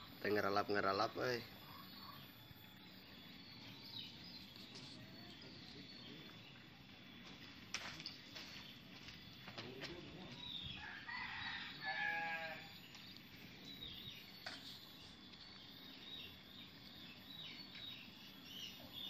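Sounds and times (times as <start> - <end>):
animal bleat-like call: 11.9 - 12.7.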